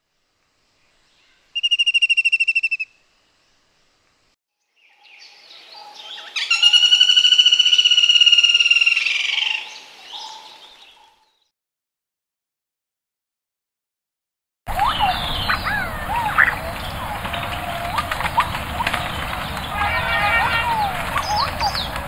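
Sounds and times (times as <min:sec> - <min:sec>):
faint outdoor background noise: 0:00.0 - 0:11.5, 0:14.7 - 0:22.0
rattling bird trill: 0:14.7 - 0:22.0.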